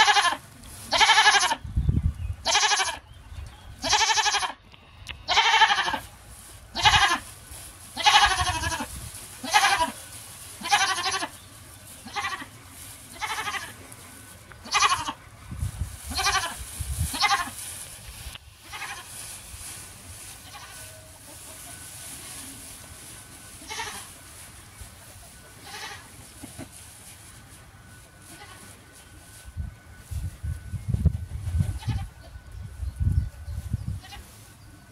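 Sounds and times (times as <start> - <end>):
goats bleating: 0.0 - 1.6, 2.4 - 3.0, 3.8 - 4.6, 5.3 - 6.1, 6.7 - 7.3, 8.0 - 10.0, 10.6 - 11.4, 12.0 - 13.8, 14.6 - 15.2, 16.1 - 17.6, 18.6 - 19.1, 23.6 - 24.2, 25.6 - 26.2.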